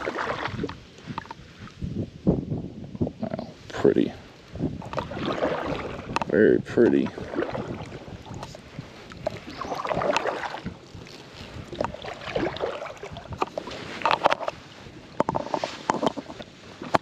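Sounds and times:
paddle splashing in water: 0.0 - 1.4, 4.8 - 17.0.

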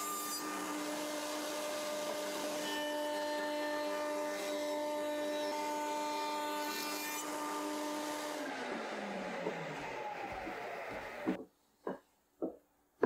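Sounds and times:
router cutting wood board: 0.0 - 11.4
router whining: 5.7 - 11.4.

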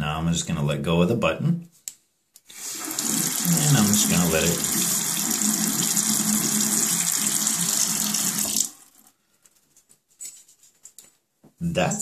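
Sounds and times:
faucet running into sink: 2.5 - 9.0
faucet turned off: 2.5 - 9.0.

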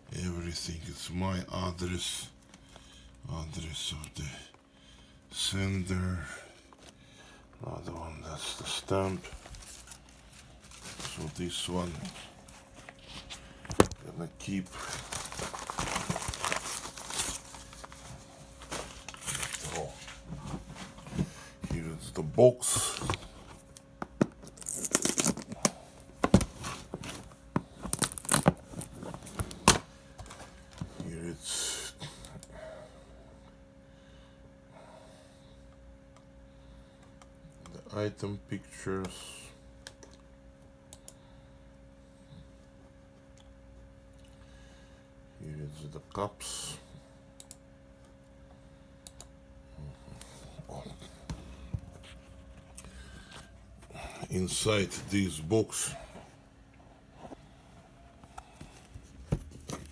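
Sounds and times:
steady low hum: 0.0 - 59.9
cardboard packaging crackling and tearing: 13.8 - 20.1, 24.4 - 30.4.

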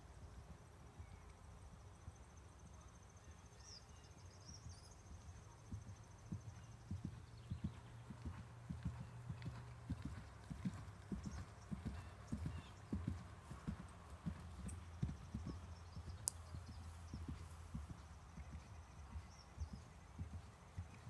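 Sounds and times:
horse hoofbeats on grass: 5.6 - 21.0.

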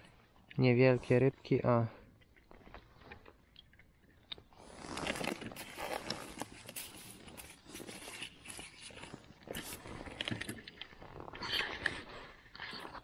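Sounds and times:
jacket rustling and crunching: 4.6 - 10.2.

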